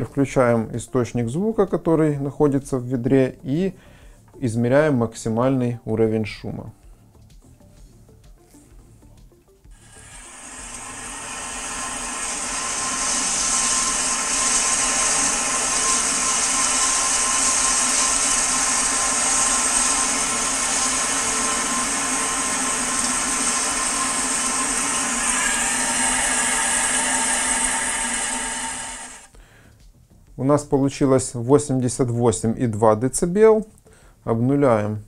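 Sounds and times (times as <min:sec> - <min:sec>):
hissing test noise: 0:09.7 - 0:29.4
steady tones: 0:09.7 - 0:29.4.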